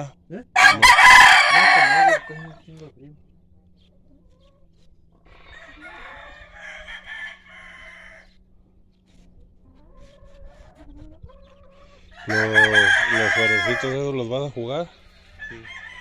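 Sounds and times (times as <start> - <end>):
rooster crowing: 0.6 - 2.6, 5.3 - 8.3, 12.1 - 14.2, 15.4 - 16.0
chickens clucking: 0.6 - 16.0.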